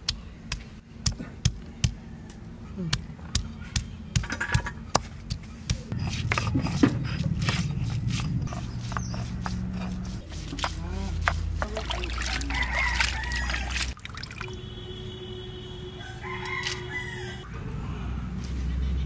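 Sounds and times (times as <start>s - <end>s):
stone grinding rumble: 5.9s - 11.8s.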